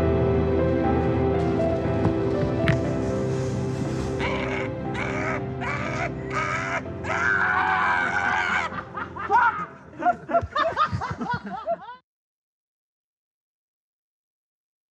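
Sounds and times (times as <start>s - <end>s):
sustained music chords: 0.0s - 7.5s
man cackling laughter: 8.0s - 12.0s.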